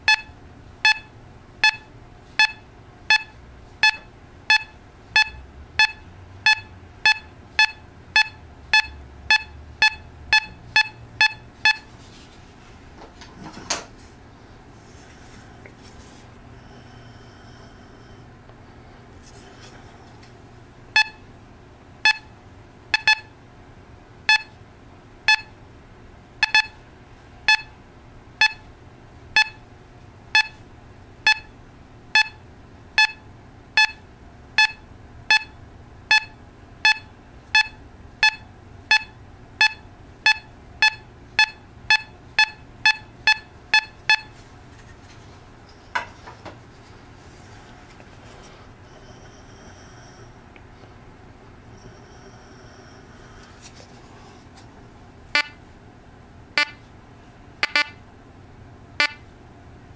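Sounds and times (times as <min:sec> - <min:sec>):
metal detector beeps: 0:00.0 - 0:00.3, 0:00.9 - 0:11.9, 0:21.0 - 0:21.2, 0:22.1 - 0:22.3, 0:23.0 - 0:23.3, 0:24.3 - 0:24.5, 0:25.3 - 0:25.5, 0:26.4 - 0:26.8, 0:27.5 - 0:27.7, 0:28.4 - 0:28.6, 0:29.4 - 0:29.6, 0:30.4 - 0:30.6, 0:31.3 - 0:31.5, 0:32.2 - 0:32.4, 0:33.0 - 0:33.2, 0:33.8 - 0:34.0, 0:34.6 - 0:44.3, 0:55.4 - 0:55.6, 0:56.6 - 0:56.8, 0:57.6 - 0:58.0, 0:59.0 - 0:59.2
faint metal detector signal: 0:55.4 - 0:55.6, 0:59.0 - 0:59.2.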